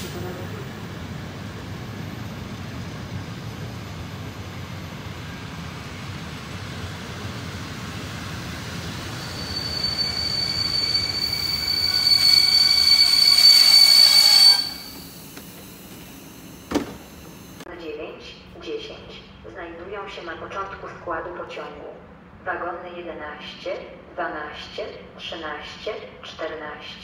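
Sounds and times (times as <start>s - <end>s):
train coaches rumbling: 0.0s - 16.2s
train wheels squealing: 8.8s - 17.5s.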